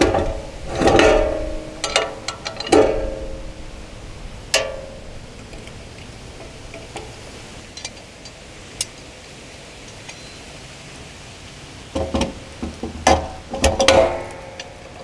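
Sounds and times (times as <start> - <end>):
metal clank: 0.0 - 3.7, 4.5 - 7.1, 13.0 - 15.0.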